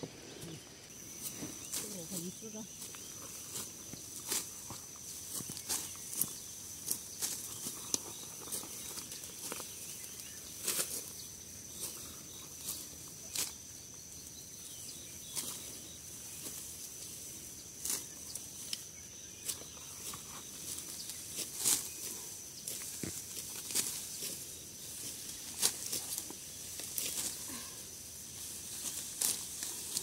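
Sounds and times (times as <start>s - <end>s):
footsteps through straw: 0.3s - 13.6s
dry stalks rustling and snapping: 2.8s - 11.1s, 17.8s - 27.6s, 28.5s - 30.0s.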